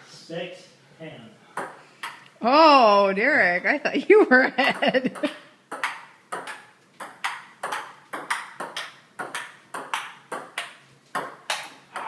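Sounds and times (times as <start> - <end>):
table tennis ball knocking: 1.6 - 2.2, 4.7 - 12.0.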